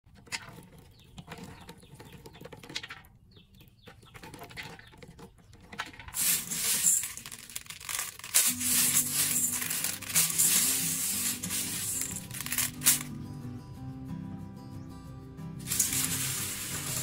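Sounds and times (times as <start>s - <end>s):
beans rattling in metal bowl: 5.8s - 13.1s, 15.6s - 17.0s
sprouts rustling and crackling: 6.1s - 13.1s, 15.6s - 17.0s.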